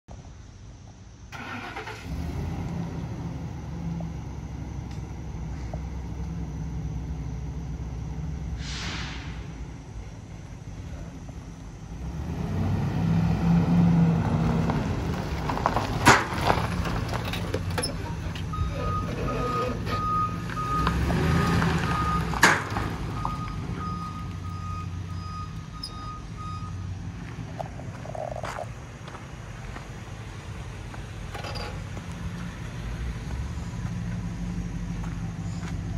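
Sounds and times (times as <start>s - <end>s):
truck engine running: 1.3s - 35.9s
sharp clunks: 16.0s - 16.4s, 22.4s - 22.9s
back-up alarm beeping: 17.8s - 22.4s, 23.1s - 26.8s.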